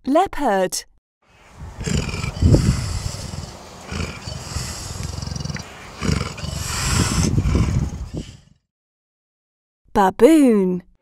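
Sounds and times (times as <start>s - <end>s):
leopard growling and snarling: 1.6s - 8.7s.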